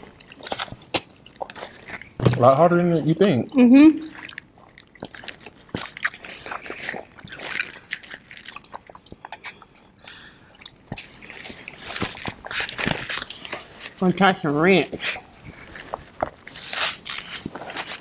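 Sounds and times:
chewing and wet mouth noises: 0:00.0 - 0:02.2, 0:03.4 - 0:14.0, 0:14.8 - 0:18.0.

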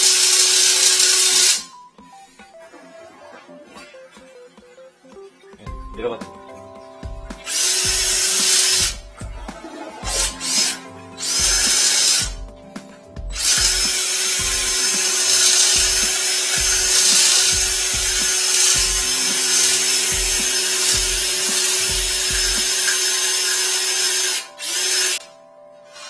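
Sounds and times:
cordless drill motor whine: 0:13.4 - 0:25.2.

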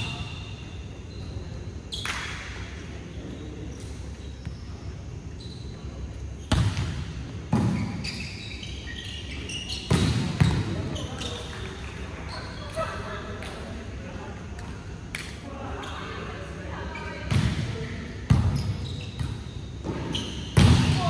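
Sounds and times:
volleyball hits echoing: 0:19.2 - 0:21.0.

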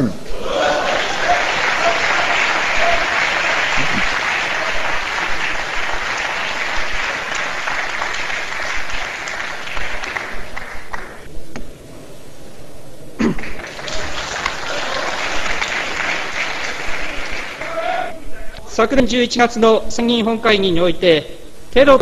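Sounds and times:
applause: 0:00.3 - 0:11.3, 0:13.3 - 0:18.2.

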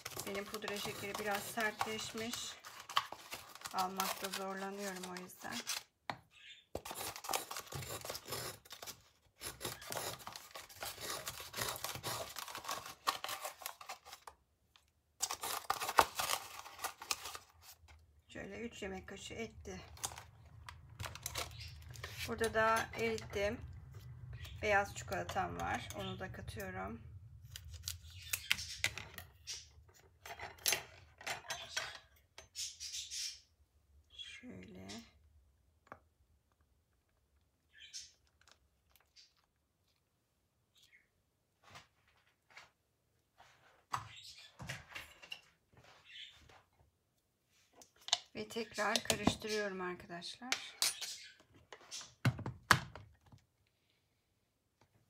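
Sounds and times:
spoon scraping hard sugar: 0:00.0 - 0:05.8, 0:06.8 - 0:14.1.

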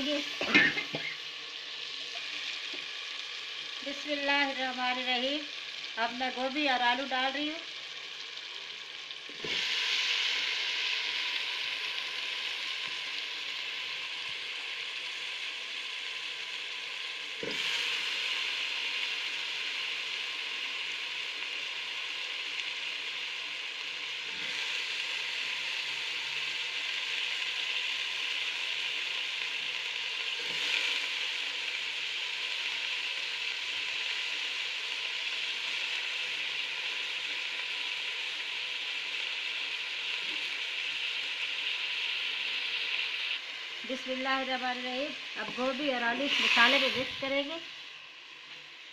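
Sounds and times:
vegetables sizzling in hot oil: 0:00.0 - 0:48.9.

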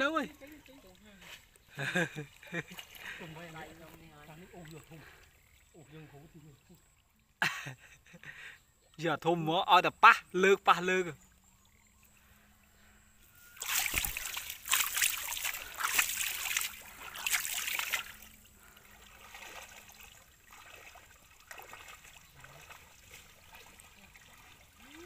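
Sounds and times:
water splashing and sloshing: 0:00.0 - 0:07.9, 0:13.3 - 0:25.0.

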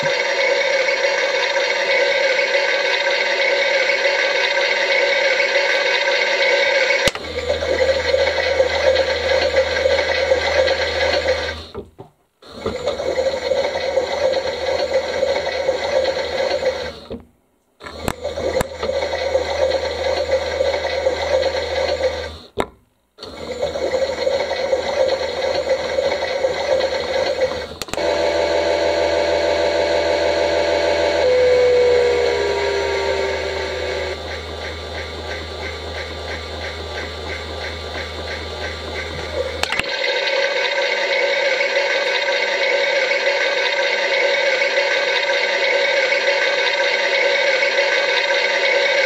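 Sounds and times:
toy washing machine motor: 0:00.0 - 0:11.7, 0:12.4 - 0:17.1, 0:17.8 - 0:22.5, 0:23.2 - 0:49.0
steady machine tone: 0:06.3 - 0:11.8, 0:23.5 - 0:39.6.

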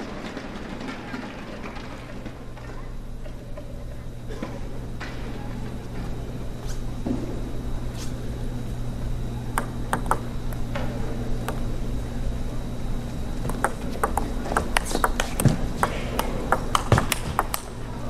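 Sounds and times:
low arena hum: 0:00.0 - 0:18.0
table tennis ball clicking: 0:09.5 - 0:11.8, 0:13.4 - 0:17.8.

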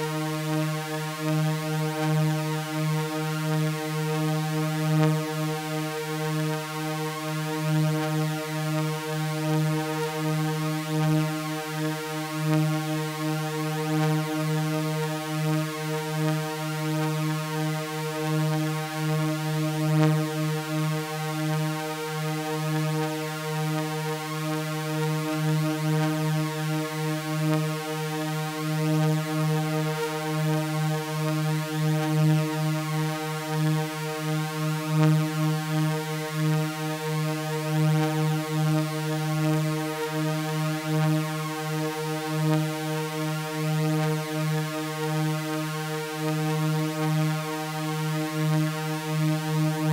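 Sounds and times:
low synthesizer drone: 0:49.7 - 0:49.9.

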